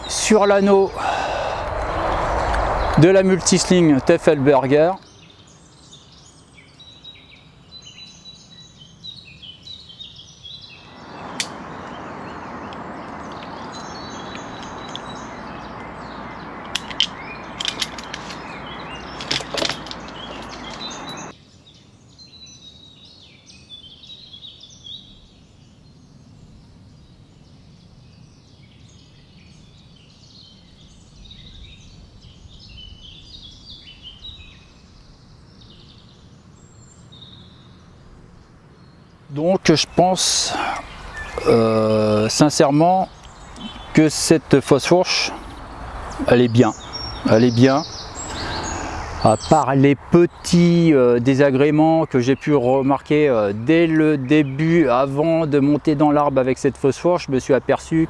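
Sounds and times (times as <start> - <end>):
steady rushing noise: 0.0 - 5.1, 10.8 - 21.3
birds chirping: 0.0 - 58.0
sharp clicks: 11.3 - 12.0, 16.6 - 18.4.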